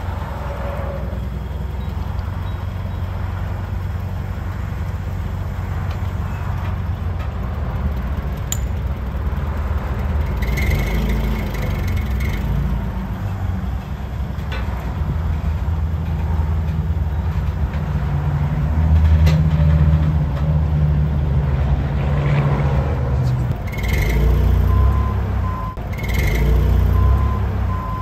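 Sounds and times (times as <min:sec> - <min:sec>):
forklift engine running: 0:00.0 - 0:22.0, 0:23.2 - 0:28.0.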